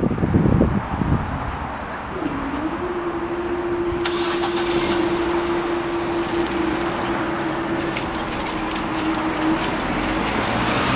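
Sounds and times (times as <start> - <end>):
road traffic hum: 0.0 - 10.9
level crossing alarm tone: 2.5 - 9.5.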